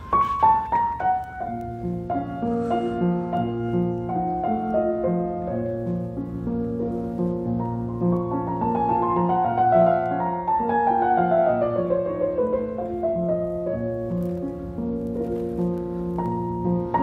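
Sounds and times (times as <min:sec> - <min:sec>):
grand piano playing: 0:00.0 - 0:17.0.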